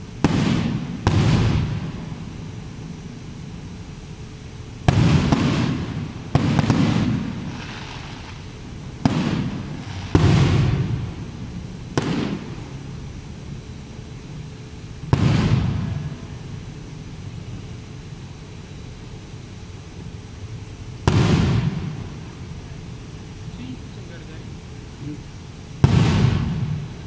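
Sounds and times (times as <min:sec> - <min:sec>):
firework bangs with rumble: 0:00.0 - 0:02.8, 0:04.8 - 0:12.7, 0:15.1 - 0:16.6, 0:21.0 - 0:22.4, 0:25.8 - 0:27.0.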